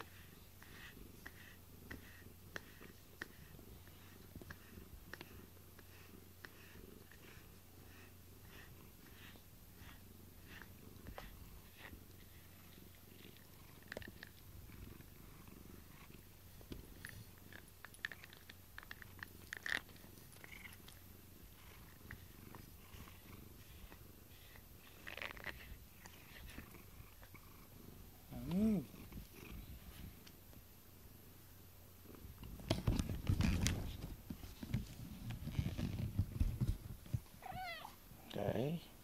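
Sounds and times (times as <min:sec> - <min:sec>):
cat purring: 0:00.0 - 0:30.3
small clicks and rustles: 0:10.6 - 0:15.1, 0:16.0 - 0:21.0, 0:32.4 - 0:37.4.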